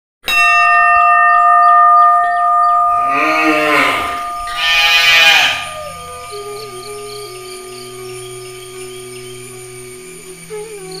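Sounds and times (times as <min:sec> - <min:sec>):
steady ringing tone: 0:00.3 - 0:11.0
cattle mooing: 0:03.0 - 0:06.0.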